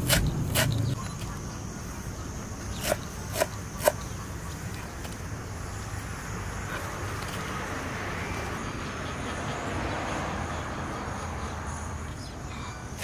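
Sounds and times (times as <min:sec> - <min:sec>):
knife chopping on wooden board: 0:00.0 - 0:00.8, 0:02.8 - 0:04.0.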